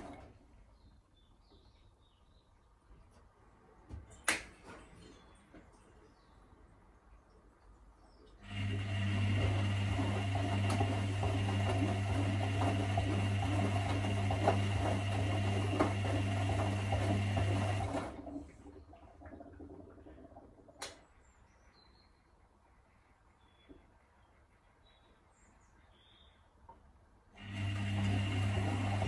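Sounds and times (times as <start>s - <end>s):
washing machine motor humming: 0.0s - 0.4s, 8.4s - 20.5s, 27.4s - 29.0s.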